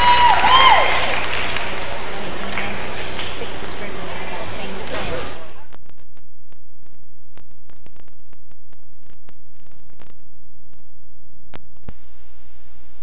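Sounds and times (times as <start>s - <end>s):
low tape hum: 0.0s - 13.0s
clicks and crackles: 5.7s - 12.0s.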